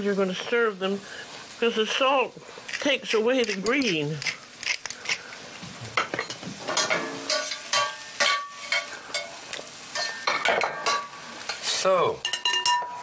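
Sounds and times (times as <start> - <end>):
vegetables sizzling in a pan: 0.0 - 13.0
metal spatula scraping a pan: 6.2 - 11.2.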